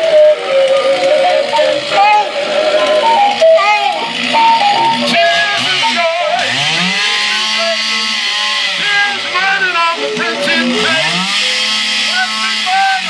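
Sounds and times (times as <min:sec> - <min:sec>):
chainsaw engine revving: 0:00.0 - 0:13.0
man shouting into a microphone: 0:12.1 - 0:13.0.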